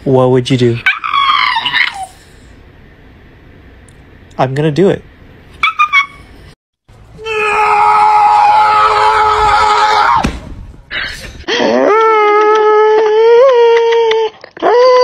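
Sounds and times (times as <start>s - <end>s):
dog howling: 0.8s - 2.2s
scream-like cry: 0.9s - 2.2s, 7.2s - 10.2s.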